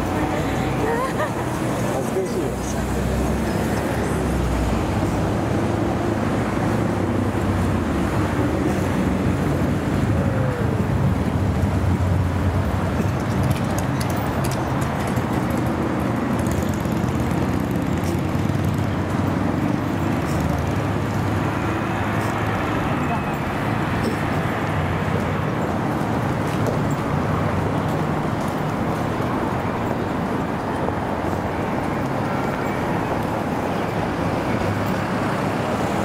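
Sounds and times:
cars and buses passing: 0.0s - 36.0s.

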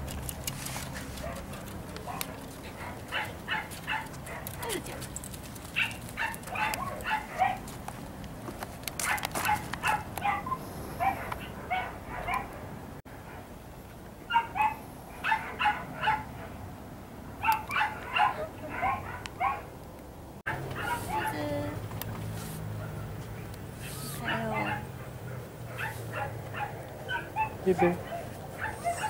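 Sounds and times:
dog barking and yipping: 1.2s - 7.7s, 9.0s - 12.6s, 14.3s - 16.5s, 17.4s - 19.7s, 20.5s - 21.6s, 22.7s - 23.2s, 23.8s - 29.0s.

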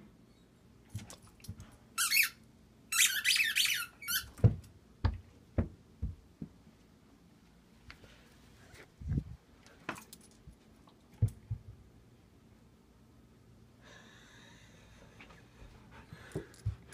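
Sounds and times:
squeaky ball squeaking: 2.0s - 4.4s
ball bouncing down carpeted stairs: 4.2s - 6.6s, 11.2s - 11.9s, 15.6s - 16.9s.

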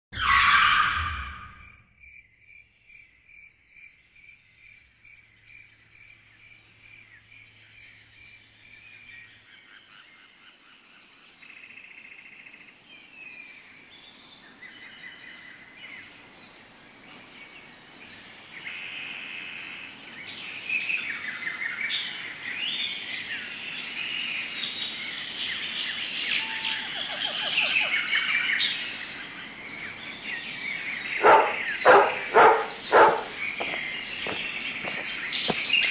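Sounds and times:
high insect trill: 15.3s - 35.9s
birds chirping: 20.2s - 35.9s
dog barking: 31.2s - 33.4s.

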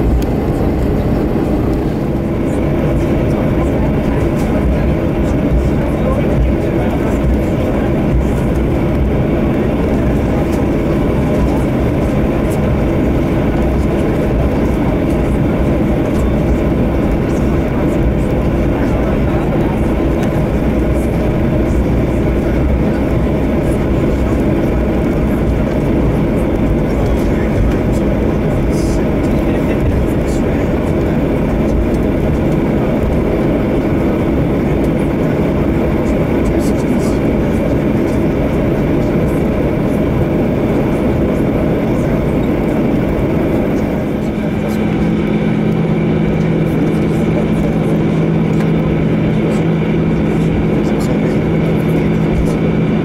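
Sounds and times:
jet airliner cabin rumble: 0.0s - 53.0s.

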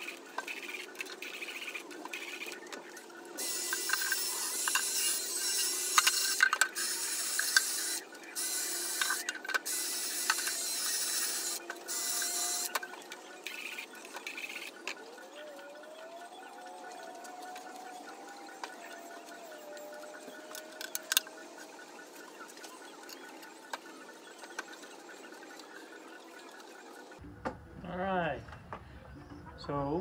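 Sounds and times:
drill with wire brush scrubbing: 3.4s - 12.8s.

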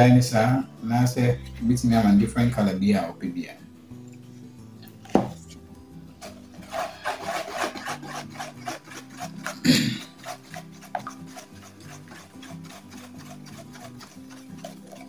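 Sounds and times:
stick scraping plastic basin: 5.0s - 15.0s.

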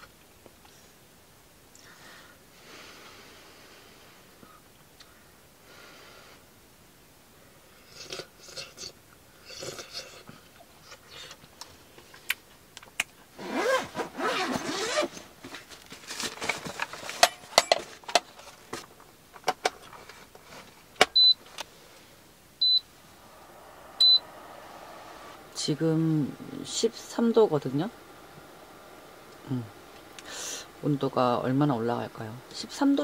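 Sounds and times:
rustling and handling clicks: 15.0s - 21.7s
short high electronic beeps: 22.6s - 22.8s, 24.0s - 24.2s.

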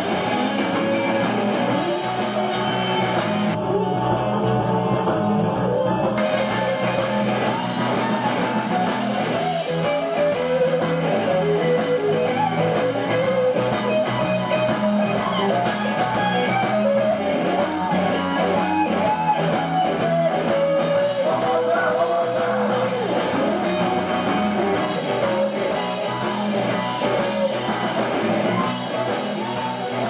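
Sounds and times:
bass line: 0.0s - 30.0s
drums and cymbals: 0.0s - 30.0s
electric guitar bending notes: 0.0s - 30.0s.

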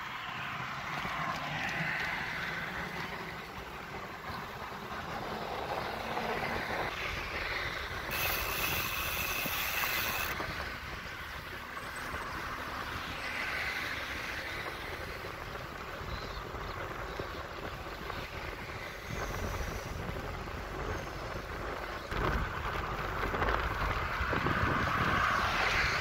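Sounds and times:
bicycle rolling: 0.0s - 26.0s
wind rushing over microphone: 0.8s - 26.0s.

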